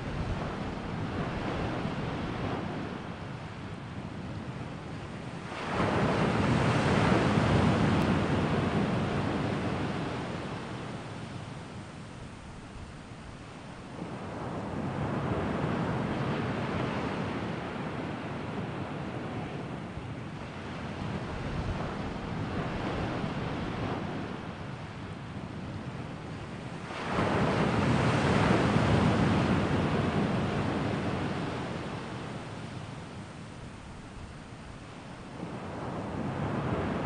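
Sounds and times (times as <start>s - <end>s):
ocean waves washing: 0.0s - 37.0s.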